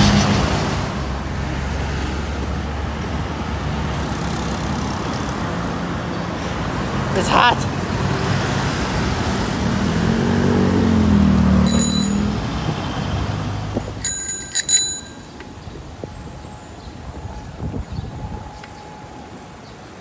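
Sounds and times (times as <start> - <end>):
road traffic passing: 0.0 - 20.0
bicycle bell ringing: 11.7 - 12.5, 13.8 - 15.4.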